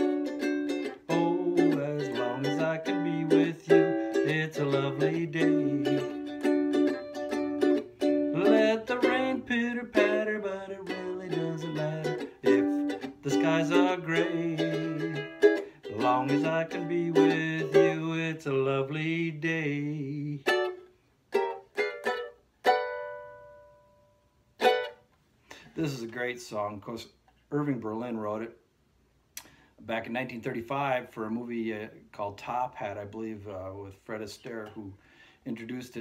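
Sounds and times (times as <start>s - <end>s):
ukulele strumming: 0.0s - 25.1s.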